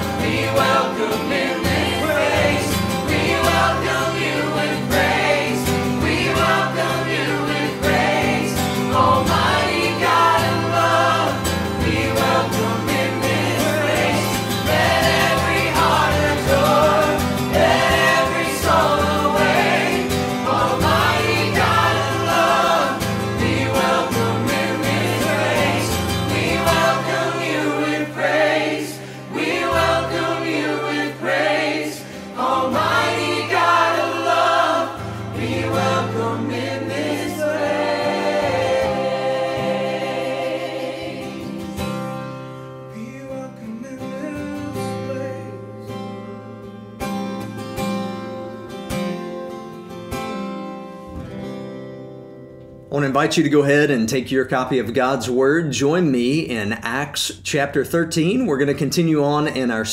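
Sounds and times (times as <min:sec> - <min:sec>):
instrumental accompaniment with bass: 0:00.0 - 0:28.5
group singing worship song: 0:00.0 - 0:43.2.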